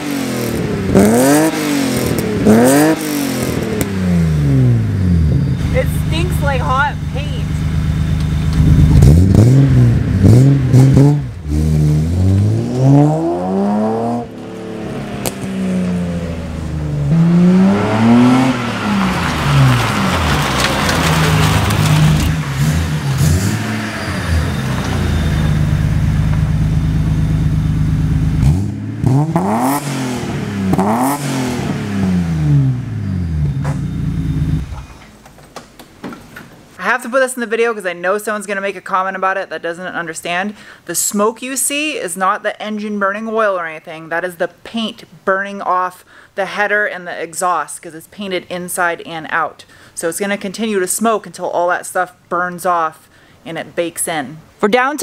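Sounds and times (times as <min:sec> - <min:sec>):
car engine accelerating: 0:00.0 - 0:35.2.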